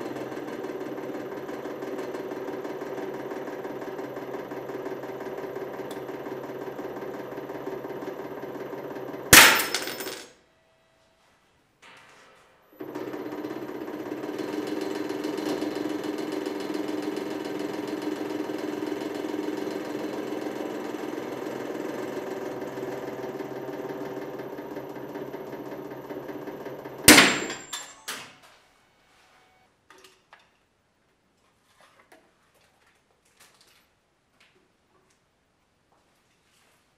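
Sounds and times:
loud crack of breaking metal: 9.4 - 10.1, 27.1 - 28.1
hydraulic pump humming: 12.8 - 27.7.

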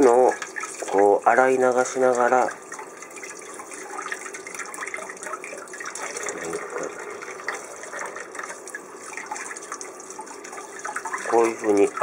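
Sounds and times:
tap water splashing into metal bowl: 0.0 - 6.6.

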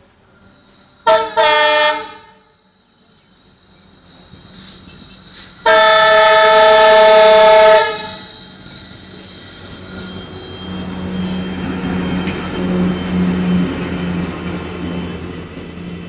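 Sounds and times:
train rumble: 0.0 - 16.0
locomotive horn blasts: 1.0 - 2.5, 5.6 - 8.4.

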